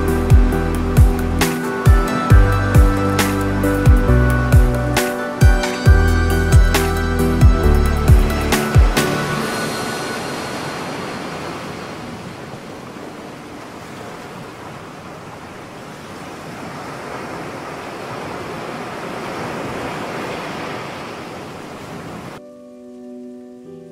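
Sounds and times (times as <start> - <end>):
music: 0.0 - 10.8, 22.4 - 23.9
waves on pebble shore: 8.6 - 22.4.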